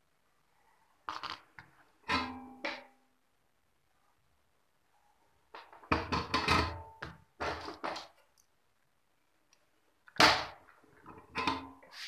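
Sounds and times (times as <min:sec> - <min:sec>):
parts knocking on workbench: 0:05.6 - 0:08.2.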